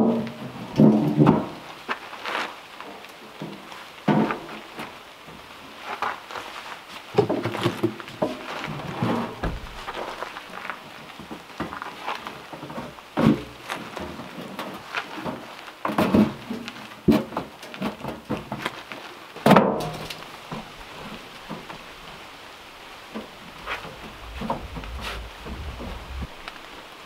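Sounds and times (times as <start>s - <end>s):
wooden knocks and clatters: 7.2s - 11.8s, 12.4s - 18.8s, 22.8s - 26.8s.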